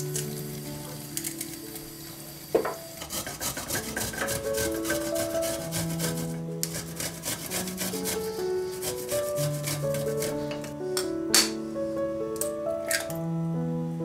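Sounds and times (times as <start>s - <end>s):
background music: 0.0s - 14.0s
ginger rasping on a metal grater: 3.0s - 10.5s.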